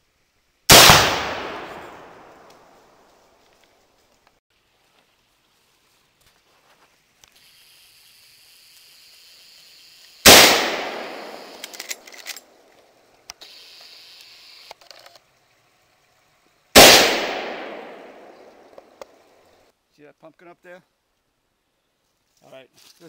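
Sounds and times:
rifle shots echoing: 0:00.7 - 0:02.8, 0:10.2 - 0:12.0, 0:16.8 - 0:18.7.

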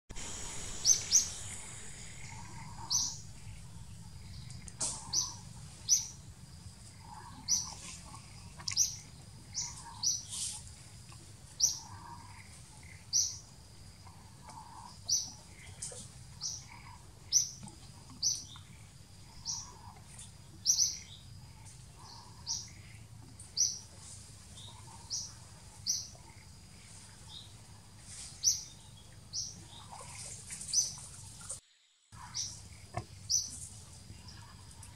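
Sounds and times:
steady low rumble: 0:00.1 - 0:14.3
bird chirping: 0:00.2 - 0:06.3, 0:06.9 - 0:10.6, 0:11.6 - 0:31.1, 0:32.2 - 0:34.5.

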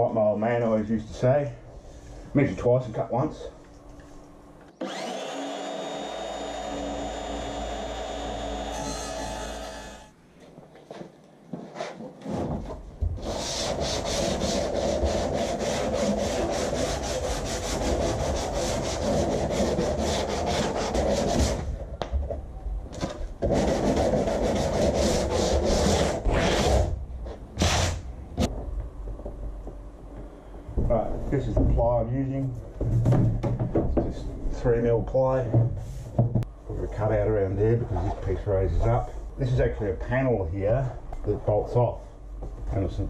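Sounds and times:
circular saw cutting: 0:04.8 - 0:10.1
sandpaper scratching plywood edge: 0:13.2 - 0:21.7, 0:23.4 - 0:26.9, 0:27.6 - 0:28.0.

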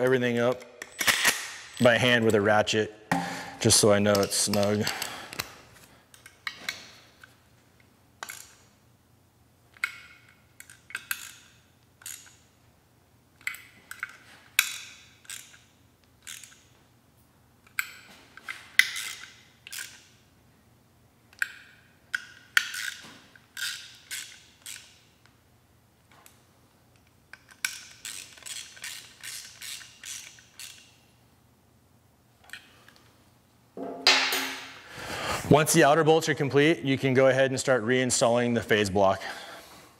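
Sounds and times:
ratchet wrench clicking: 0:09.8 - 0:12.4, 0:13.4 - 0:16.7, 0:18.8 - 0:20.1, 0:21.4 - 0:25.0, 0:27.4 - 0:30.9.

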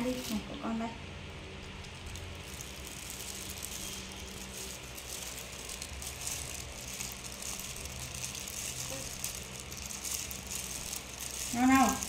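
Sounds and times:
plastic gloves and shells rustling: 0:00.0 - 0:12.0
steady low hum: 0:00.0 - 0:12.0.

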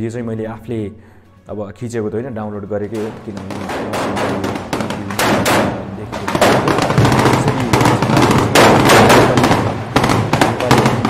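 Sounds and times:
rapid gunfire: 0:03.0 - 0:11.0.

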